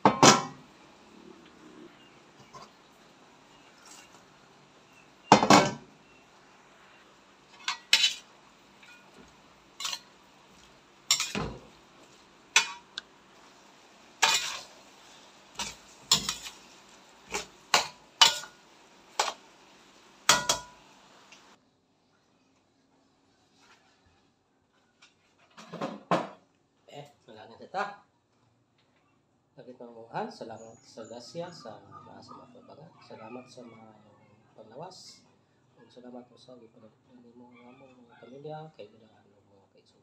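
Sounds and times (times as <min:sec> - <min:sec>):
metal spatula scraping a wok: 0:03.5 - 0:04.3, 0:07.5 - 0:13.6, 0:14.2 - 0:19.5, 0:20.2 - 0:21.0.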